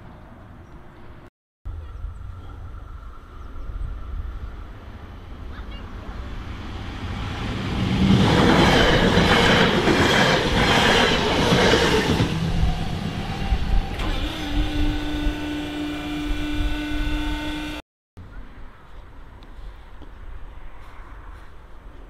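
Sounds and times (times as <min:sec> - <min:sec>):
train wheels rumbling and clattering: 0:06.0 - 0:14.0.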